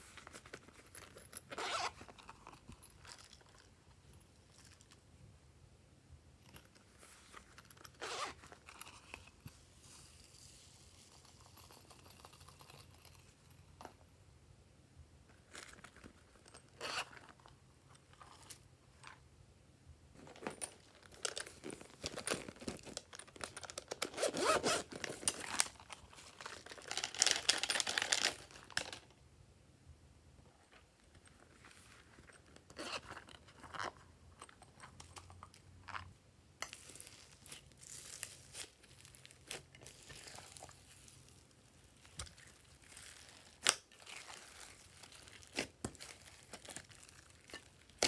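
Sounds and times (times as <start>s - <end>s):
decorations crackling into a bowl: 36.6s - 48.0s.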